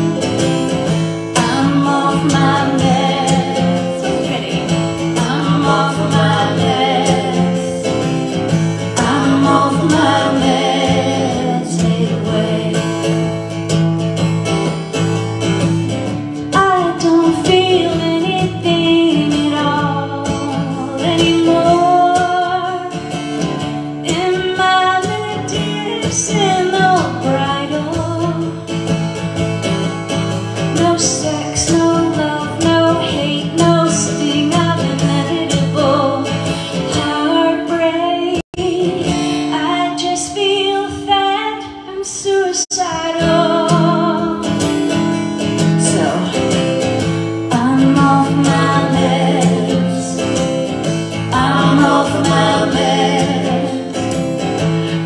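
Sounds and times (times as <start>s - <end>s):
strummed acoustic guitars: 0.0s - 55.0s
woman singing with vibrato: 1.2s - 13.4s, 16.5s - 28.6s, 30.7s - 46.8s, 47.4s - 54.2s.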